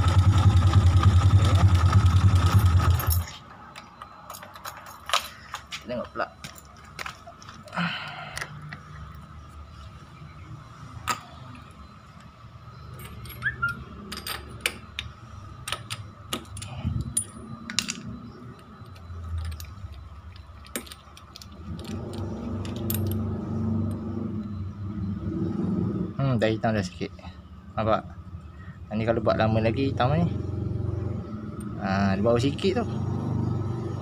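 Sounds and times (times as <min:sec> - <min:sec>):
metal spanner clicking: 0:13.0 - 0:23.2.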